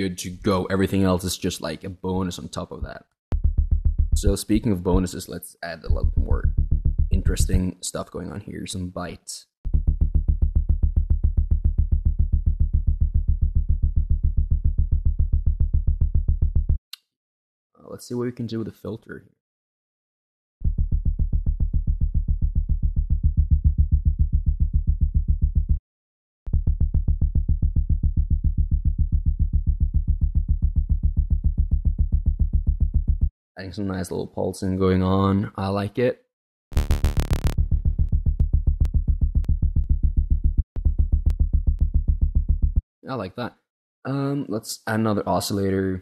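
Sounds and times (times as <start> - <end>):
pulsing synth bass note: 3.3 - 4.7, 5.9 - 7.6, 9.7 - 16.7, 20.6 - 25.8, 26.5 - 33.1, 36.8 - 42.8.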